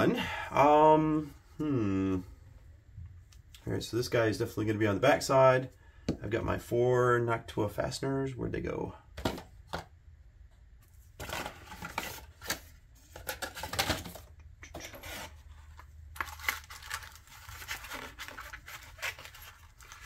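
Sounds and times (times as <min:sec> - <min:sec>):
plastic packaging rustling: 0:10.9 - 0:20.0.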